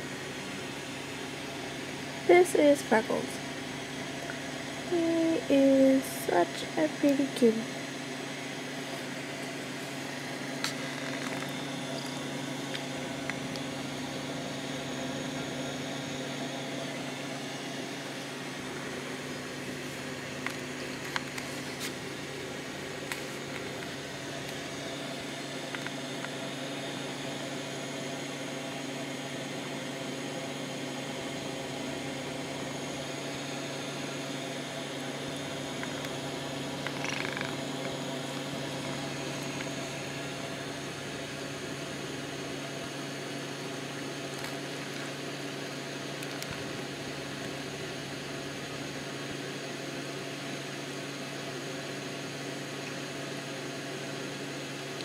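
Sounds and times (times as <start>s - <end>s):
background hum: 0.0s - 55.0s
cat purring: 36.8s - 38.0s.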